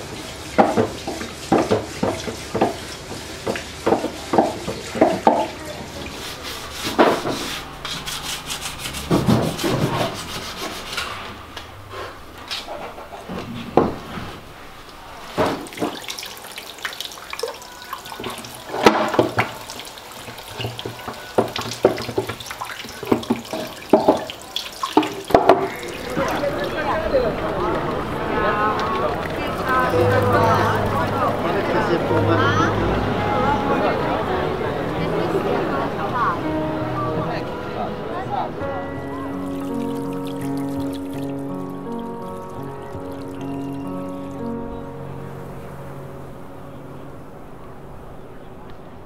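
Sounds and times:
sandpaper rubbing on wood: 5.9s - 11.3s.

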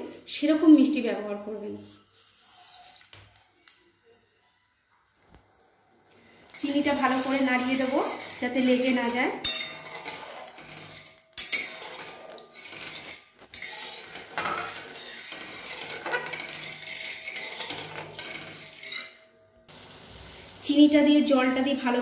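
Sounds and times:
heating liquid hissing: 6.2s - 18.2s, 19.7s - 22.0s
spatula scraping a pan: 6.3s - 19.4s.

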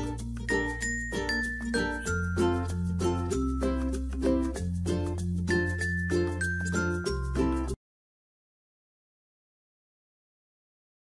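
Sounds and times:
background music: 0.0s - 7.8s.

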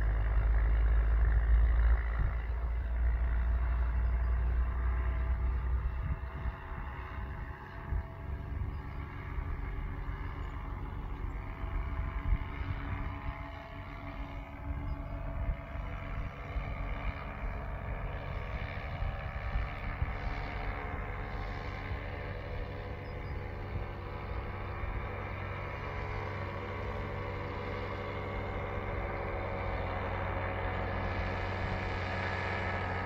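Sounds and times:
distant paramotor engine droning: 0.0s - 33.0s
wind rumbling on microphone: 0.0s - 33.0s.

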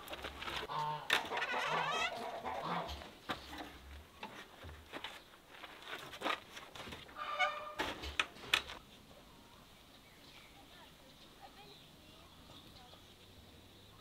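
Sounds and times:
chickens clucking: 0.6s - 3.9s.

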